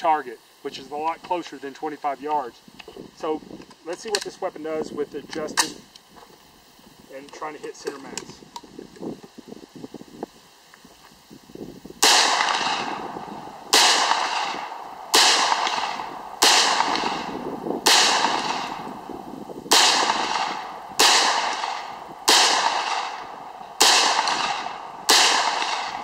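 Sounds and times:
gunshots with long echo: 12.0s - 26.0s.

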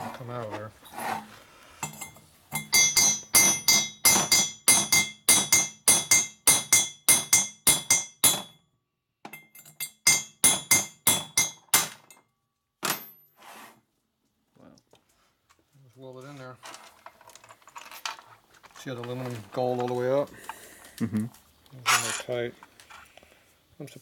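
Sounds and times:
hammer striking steel punch: 2.6s - 8.6s, 9.3s - 12.2s.

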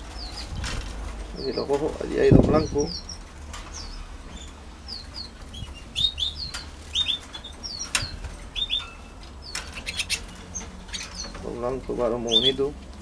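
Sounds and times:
canaries chirping: 0.0s - 13.0s
sharp clicks on perches: 5.6s - 11.6s.

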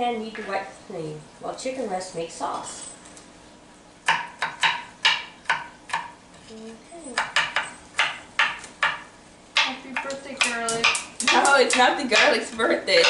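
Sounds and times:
knife chopping garlic on board: 4.0s - 6.2s, 7.2s - 12.4s.

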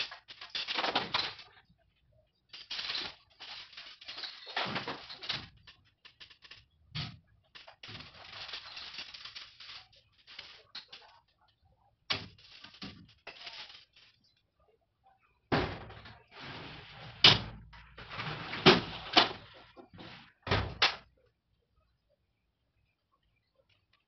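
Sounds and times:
sliding glass door clattering: 15.5s - 20.8s.

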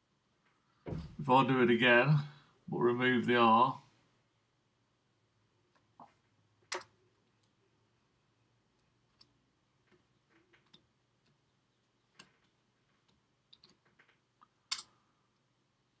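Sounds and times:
computer keys clicking: 13.0s - 13.8s.

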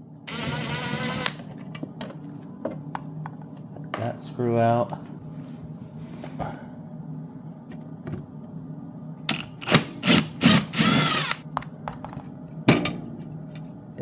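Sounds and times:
socket driver whirring: 9.3s - 11.4s.

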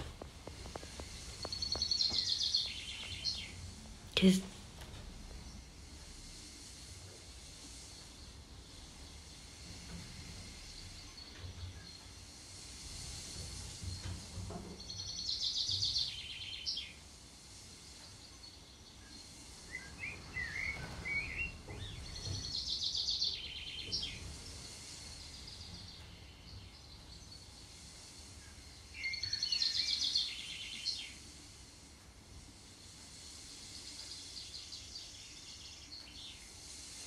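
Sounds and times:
faint steady hiss: 0.0s - 37.0s
soft bird chirps: 0.1s - 4.5s, 10.4s - 31.6s, 32.6s - 37.0s
bird trilling song: 0.6s - 3.6s, 14.9s - 17.0s, 18.4s - 24.2s, 28.8s - 31.2s.

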